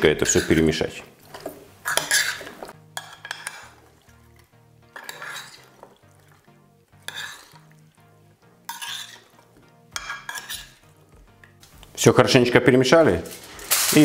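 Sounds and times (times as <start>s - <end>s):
metal spoon scraping clay dish: 0.0s - 6.4s, 7.0s - 7.8s, 8.5s - 11.2s
soft background music: 0.0s - 14.0s.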